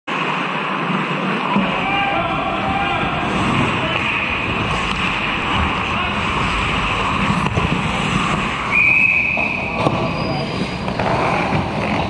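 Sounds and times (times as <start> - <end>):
skates scraping ice: 0.1 - 12.0
players' voices: 1.0 - 12.0
referee's whistle blast: 8.7 - 10.5.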